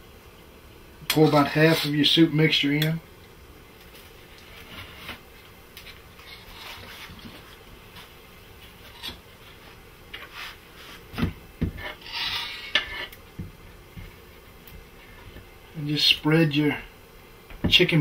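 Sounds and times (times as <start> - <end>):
knife scraping wooden board: 11.8 - 13.2.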